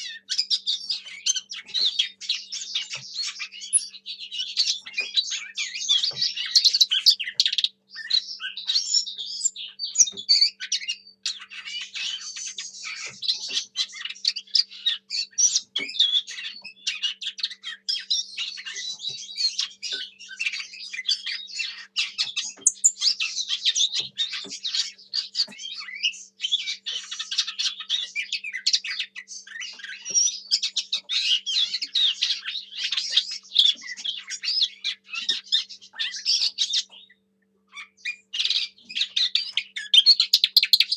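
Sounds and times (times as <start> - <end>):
bird warbling song: 0.0 - 40.9.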